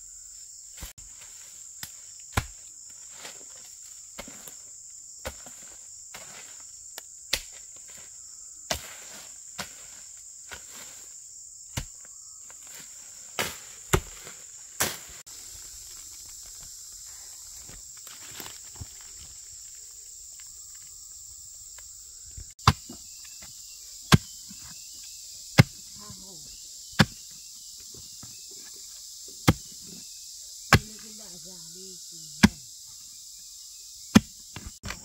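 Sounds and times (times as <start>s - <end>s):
high insect drone: 0.0s - 35.0s
digging tool striking soil: 1.8s - 2.6s, 13.4s - 15.2s, 22.6s - 23.5s, 24.1s - 24.7s, 25.6s - 26.3s, 26.9s - 27.3s, 29.4s - 30.0s, 30.7s - 31.1s, 32.4s - 32.6s, 34.1s - 35.0s.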